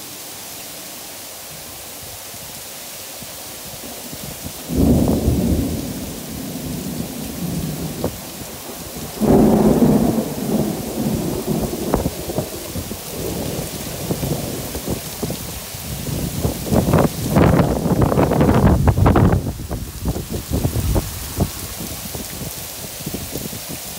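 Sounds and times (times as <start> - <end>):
heavy rain falling: 0.0 - 23.9
thunder rumbling: 4.7 - 22.4.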